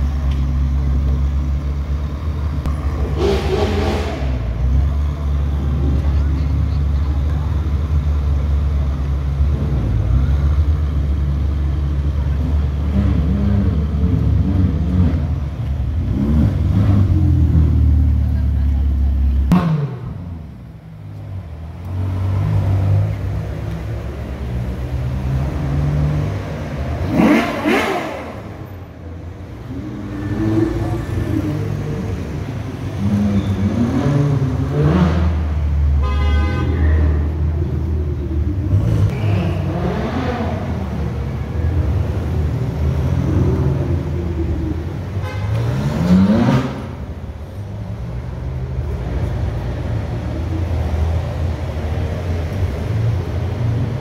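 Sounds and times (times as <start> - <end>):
sports car engines revving: 0.0 - 54.0
car horn: 35.9 - 37.2, 45.2 - 46.1.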